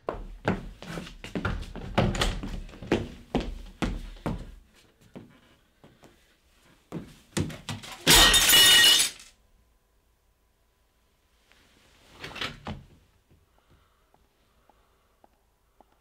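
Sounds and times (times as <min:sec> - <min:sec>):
glass shattering: 0:08.0 - 0:09.3.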